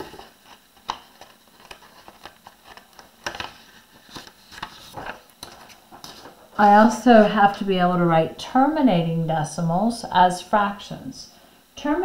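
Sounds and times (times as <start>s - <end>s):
paper rustling and snapping: 0.0s - 6.6s.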